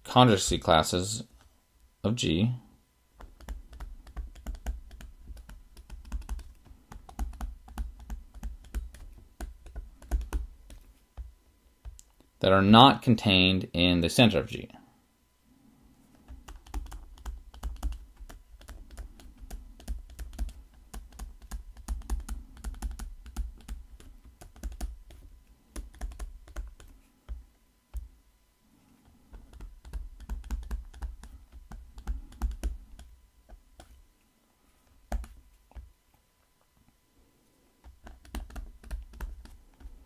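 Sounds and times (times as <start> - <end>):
stylus clicking on a tablet: 3.2 - 10.8, 16.2 - 28.1.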